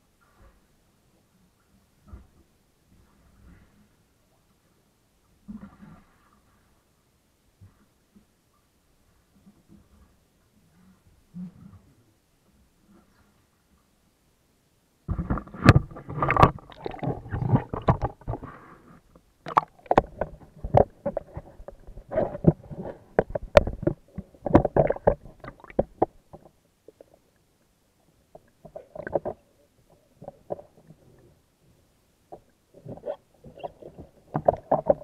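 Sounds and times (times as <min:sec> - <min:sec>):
bathwater sloshing and splashing: 0:15.2 - 0:18.6, 0:19.4 - 0:27.1.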